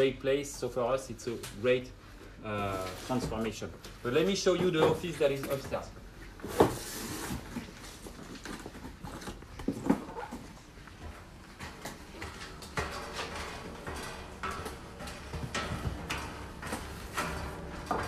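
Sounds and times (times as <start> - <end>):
footsteps on metal staircase: 9.7 - 18.0.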